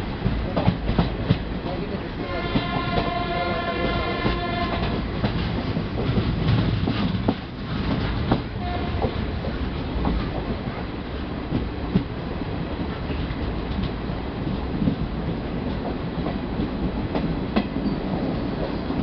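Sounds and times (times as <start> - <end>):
train wheels clattering over rail joints: 0.1 - 19.0
train horn held note: 2.3 - 5.0, 8.6 - 9.2.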